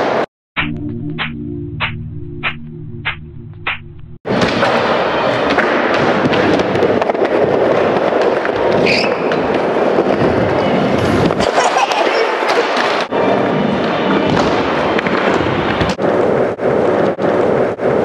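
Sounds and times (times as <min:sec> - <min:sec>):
music with steady beat: 0:00.6 - 0:03.9
skateboard clacks and scrapes: 0:04.4 - 0:18.0
skateboard wheels rolling: 0:04.4 - 0:18.0.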